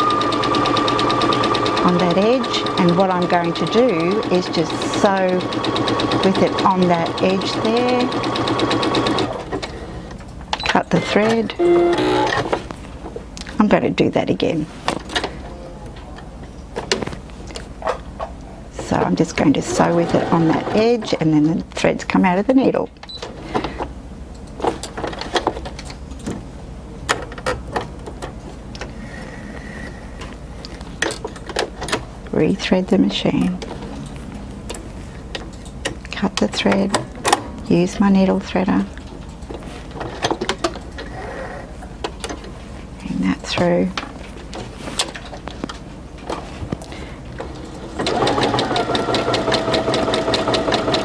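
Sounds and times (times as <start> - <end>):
sewing machine running: 0.0 - 9.5, 11.1 - 12.4, 19.6 - 21.0, 47.5 - 51.0.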